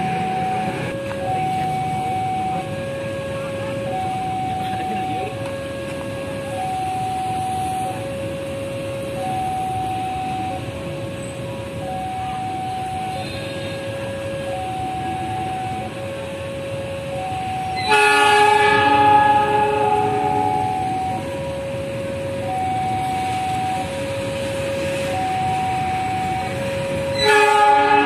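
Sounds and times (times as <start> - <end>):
level crossing alarm: 0.0 - 28.0
train rumbling: 0.0 - 28.0
locomotive horn: 13.0 - 14.1, 17.8 - 21.2, 26.9 - 28.0.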